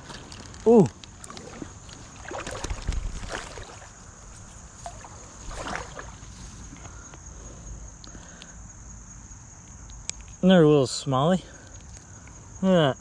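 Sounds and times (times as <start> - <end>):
fish splashing at water surface: 1.2 - 4.0, 4.8 - 6.2
creek rushing: 1.3 - 4.0.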